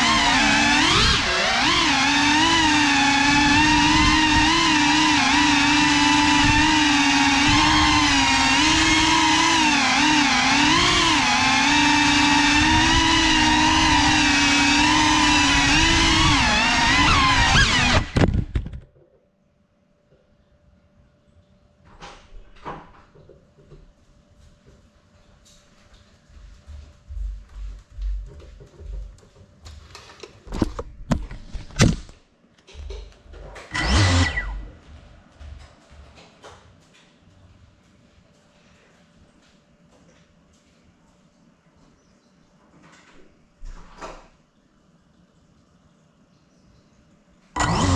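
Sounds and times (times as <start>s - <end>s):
drone motors whining: 0.0s - 18.4s, 33.6s - 35.6s, 47.6s - 47.9s
rustling and scuffing: 24.0s - 30.2s
drone knocking on tile floor: 26.7s - 29.4s.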